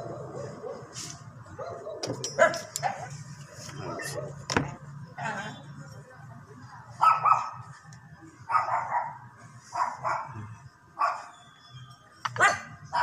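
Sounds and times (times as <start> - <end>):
dog barking: 1.6 - 2.7, 7.0 - 7.6, 8.5 - 10.4, 11.0 - 11.3, 12.4 - 13.0.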